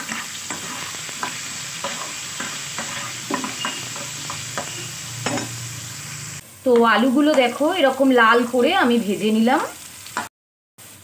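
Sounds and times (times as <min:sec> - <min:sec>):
spatula scraping pan: 0:00.0 - 0:05.8
potatoes sizzling in oil: 0:00.0 - 0:11.0.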